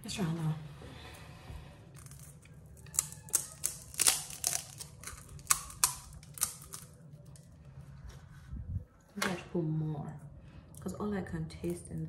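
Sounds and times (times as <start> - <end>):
crisp shells crunching: 1.9 - 7.5.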